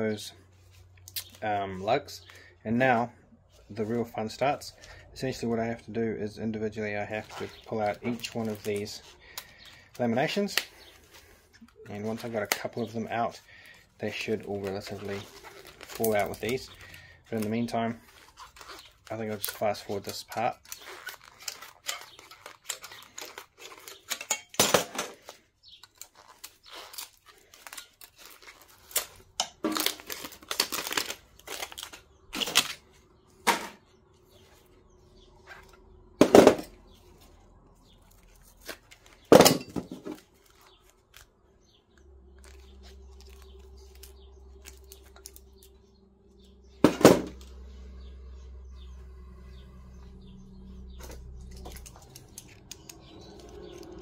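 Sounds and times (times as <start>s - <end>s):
paper rustling and tearing: 7.1s - 24.3s, 25.2s - 33.0s, 38.0s - 41.4s, 42.3s - 45.6s
metal sheets clinking on scrap: 24.0s - 25.3s.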